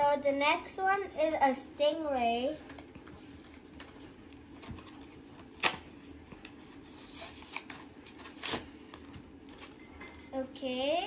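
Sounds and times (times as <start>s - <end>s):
packaging rustling and crinkling: 2.8s - 9.8s.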